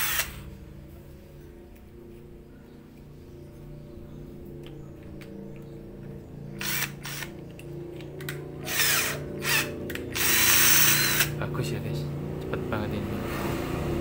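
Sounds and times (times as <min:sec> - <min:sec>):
hammer drill boring into masonry: 0:00.0 - 0:00.4, 0:06.6 - 0:07.3, 0:08.7 - 0:11.3.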